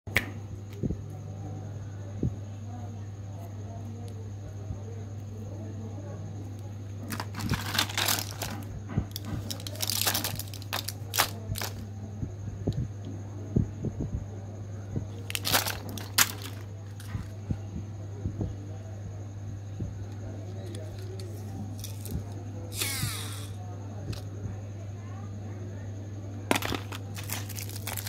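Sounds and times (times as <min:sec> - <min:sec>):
steady low hum: 0:00.1 - 0:28.0
plastic wrappers crinkling: 0:07.0 - 0:11.8, 0:15.2 - 0:17.4, 0:20.9 - 0:22.2, 0:26.5 - 0:28.0.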